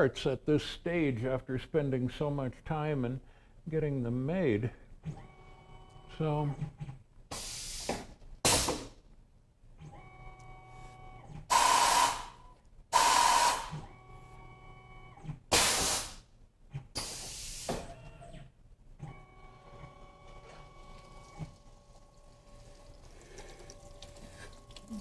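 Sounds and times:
short loud pneumatic hisses: 7.3s - 9.0s, 11.5s - 13.8s, 15.5s - 16.3s, 17.0s - 17.9s.

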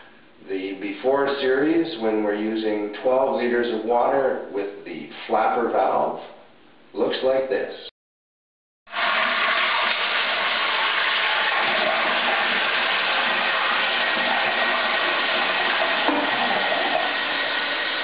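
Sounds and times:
toilet flushing: 8.9s - 18.0s.

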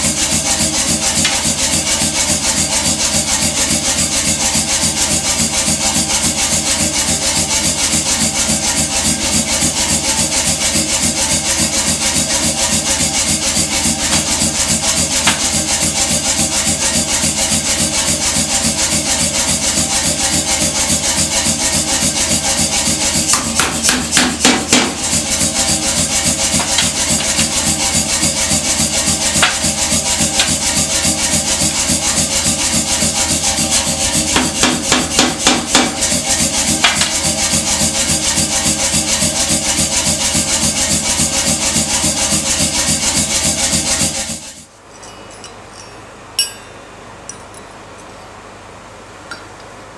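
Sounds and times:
power hammer blows: 22.3s - 39.0s.

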